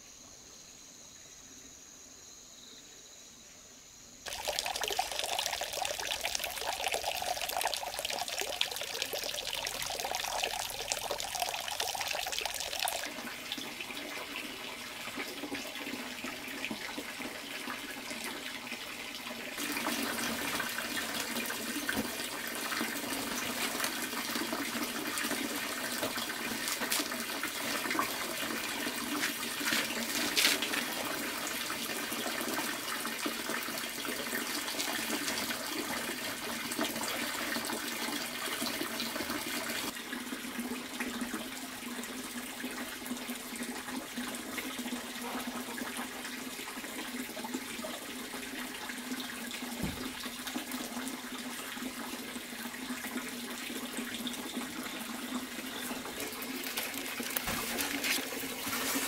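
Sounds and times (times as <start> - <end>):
water rushing: 4.3 - 13.3
water splash: 56.2 - 59.0.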